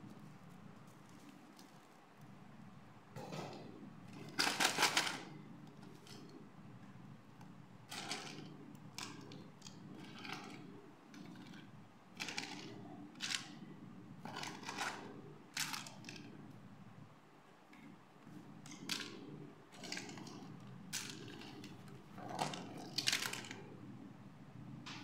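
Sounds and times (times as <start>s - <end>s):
plastic accessories clattering: 4.2s - 6.2s, 7.9s - 11.6s.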